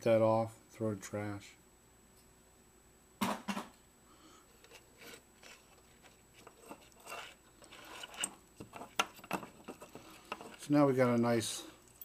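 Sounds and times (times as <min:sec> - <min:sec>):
hands rustling wires: 0:04.6 - 0:12.0.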